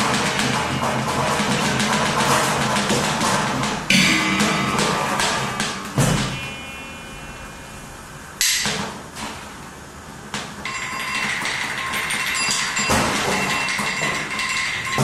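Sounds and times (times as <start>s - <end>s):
dense noisy wash: 0.0s - 10.7s
objects struck sharply: 0.4s - 9.4s
metallic ring: 3.9s - 8.2s, 10.7s - 15.0s.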